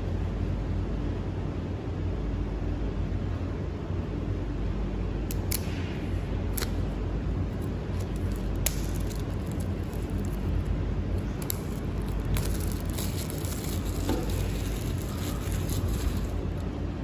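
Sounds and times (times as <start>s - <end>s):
low background rumble: 0.0s - 17.0s
plastic shrink-wrap crinkling: 7.6s - 16.8s.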